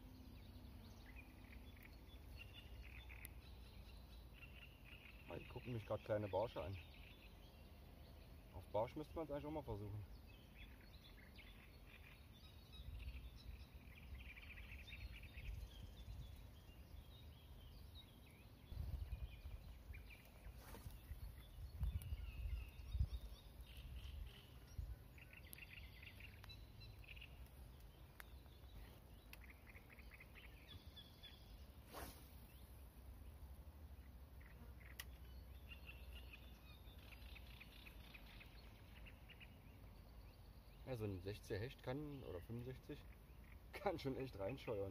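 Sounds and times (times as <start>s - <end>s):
small birds chirping: 0.0s - 44.9s
wind rumble on microphone: 18.7s - 20.1s, 20.9s - 25.0s.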